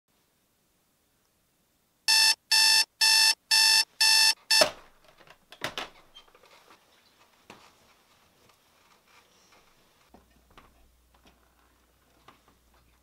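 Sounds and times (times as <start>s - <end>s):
digital alarm beeping: 2.1s - 4.7s
faint rustling: 6.0s - 13.0s.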